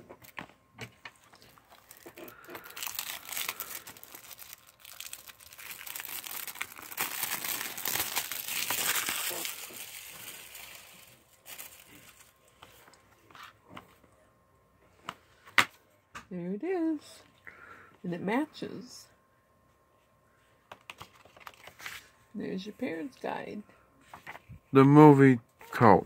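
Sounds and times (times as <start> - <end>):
plastic shrink wrap crinkling: 1.2 - 12.9.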